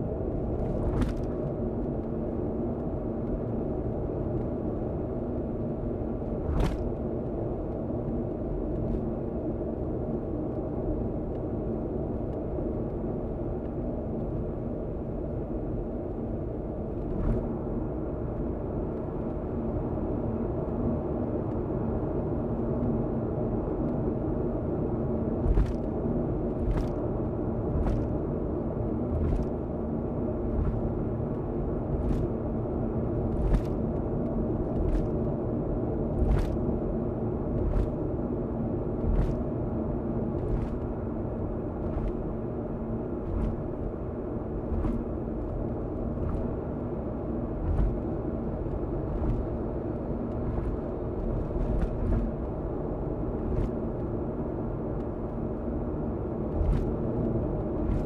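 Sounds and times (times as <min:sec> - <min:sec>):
car road noise rumble: 0:00.1 - 0:04.0, 0:06.2 - 0:07.6, 0:24.6 - 0:58.0.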